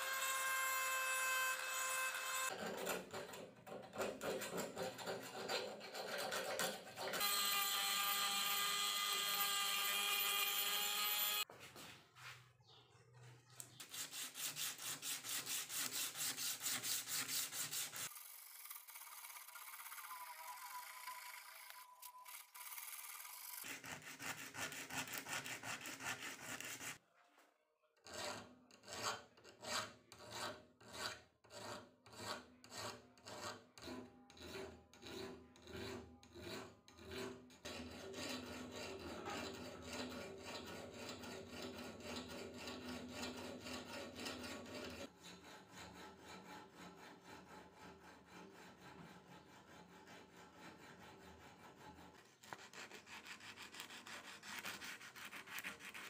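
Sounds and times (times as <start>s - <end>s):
metal file scraping steel blade: 0.0s - 11.5s, 13.6s - 27.0s, 28.0s - 56.0s
sandpaper rubbing metal: 13.7s - 27.0s, 46.1s - 56.0s.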